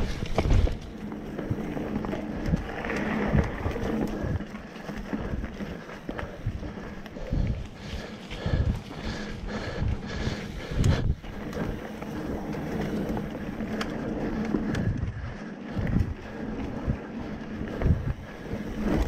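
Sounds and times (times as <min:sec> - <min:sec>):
bike thumps and rattles: 0:00.0 - 0:04.4
bike tyres rolling on dirt: 0:00.0 - 0:19.0
wind on microphone: 0:00.0 - 0:19.0.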